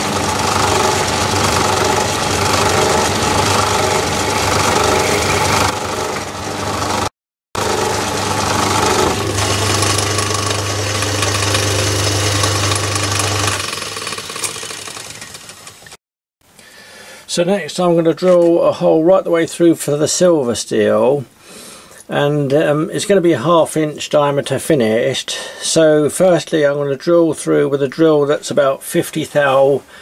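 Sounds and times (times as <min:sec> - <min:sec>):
metal lathe humming: 0:00.0 - 0:16.0.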